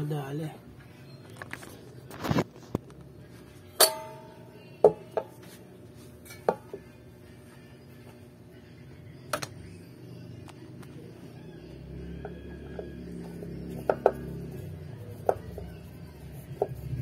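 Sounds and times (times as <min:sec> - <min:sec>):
metallic ringing tone: 0:03.8 - 0:04.7.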